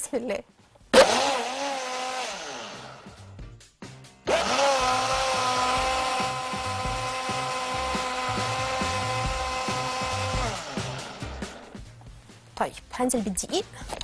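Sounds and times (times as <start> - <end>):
blender clicks: 1.0 - 3.1, 4.3 - 11.6
blender motor whining: 1.0 - 3.3, 4.3 - 11.8.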